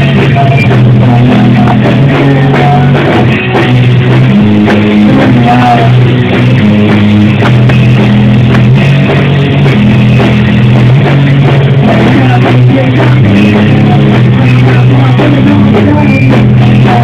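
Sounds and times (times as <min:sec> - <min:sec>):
drum hits: 0:00.0 - 0:17.0
rock band playing: 0:00.0 - 0:17.0.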